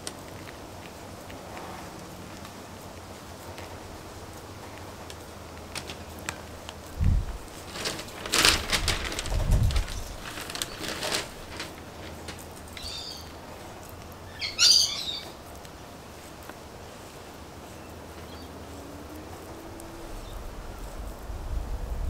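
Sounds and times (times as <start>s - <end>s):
soil crumbling between fingers: 0.0s - 21.2s
bird chirping: 12.7s - 13.4s, 14.2s - 15.5s, 17.7s - 18.8s.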